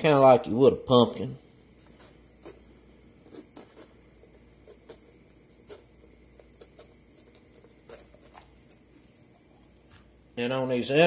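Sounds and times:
knife cutting bell pepper: 1.8s - 8.9s.

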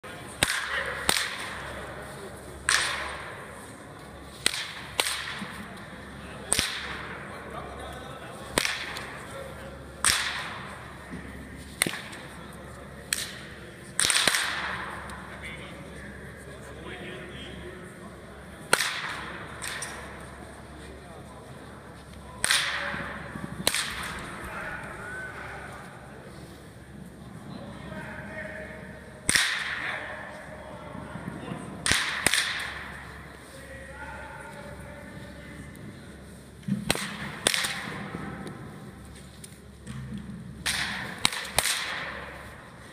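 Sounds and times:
baseball bat cracking balls: 0.2s - 2.0s, 2.6s - 7.2s, 8.4s - 9.3s, 10.0s - 15.2s, 18.6s - 20.3s, 22.2s - 24.4s, 29.2s - 29.9s, 31.8s - 33.3s, 36.6s - 39.2s, 39.8s - 42.8s.

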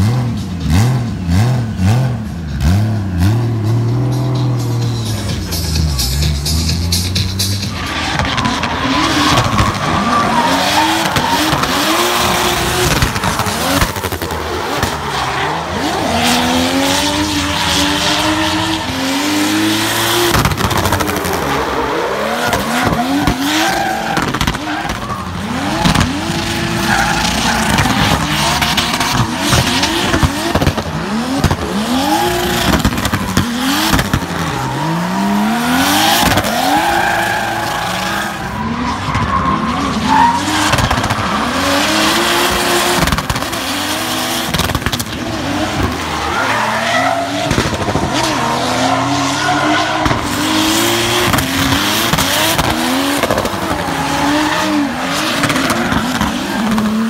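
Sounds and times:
car engine revving: 0.0s - 57.0s
tyres squealing and skidding: 3.6s - 57.0s
exhaust pops and bangs: 7.7s - 15.0s, 20.2s - 21.5s, 22.5s - 26.6s, 27.2s - 34.8s, 40.4s - 43.7s, 44.4s - 46.0s, 47.4s - 48.4s, 50.0s - 50.5s, 51.1s - 53.8s.

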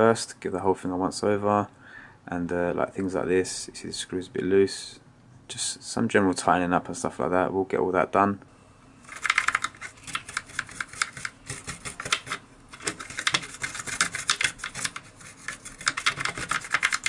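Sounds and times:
brush scrubbing plastic: 9.1s - 17.0s.

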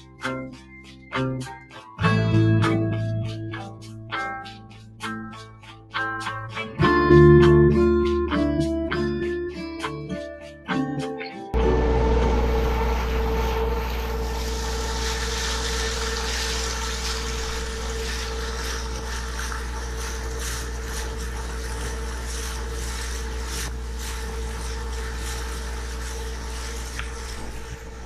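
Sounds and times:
boat engine running: 11.6s - 28.0s
water hissing: 11.6s - 28.0s.

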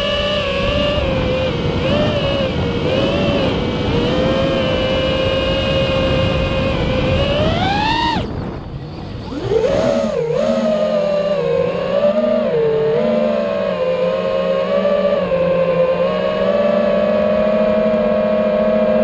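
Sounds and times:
drone motors and propellers whining: 0.0s - 19.0s.

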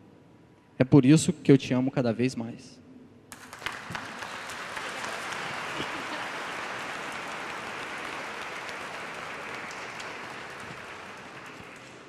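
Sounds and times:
crowd applauding: 3.3s - 12.0s.

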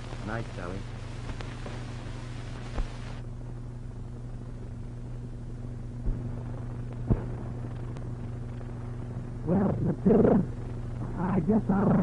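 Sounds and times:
film soundtrack hiss: 0.0s - 12.0s
low hum: 0.0s - 12.0s
sharp pops: 6.9s - 8.7s.

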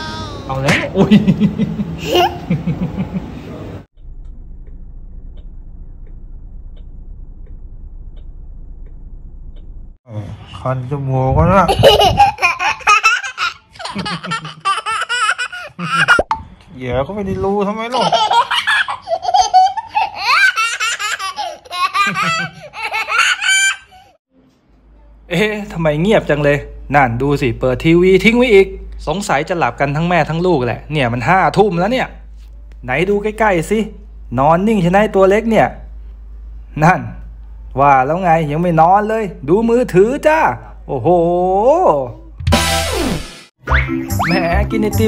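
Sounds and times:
girl laughing: 0.1s - 3.3s, 11.6s - 16.3s, 18.0s - 23.9s
girl giggling: 0.7s - 3.3s
steady low hum: 0.8s - 10.0s.

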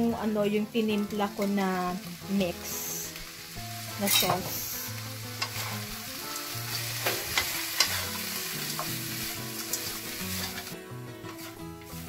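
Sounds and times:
pork sizzling in frying pan: 0.2s - 12.0s
wooden spatula scraping and tapping: 6.7s - 9.0s, 11.3s - 12.0s.

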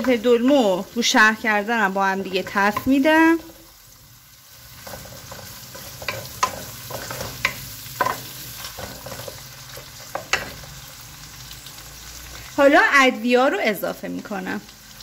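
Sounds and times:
food sizzling in oil: 0.0s - 15.0s
wooden spatula scraping pan: 4.7s - 10.6s.

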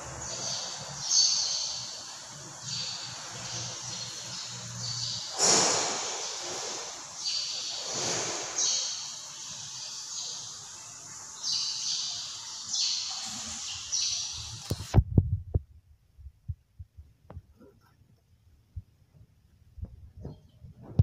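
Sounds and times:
short high hissing bursts: 0.6s - 14.9s.

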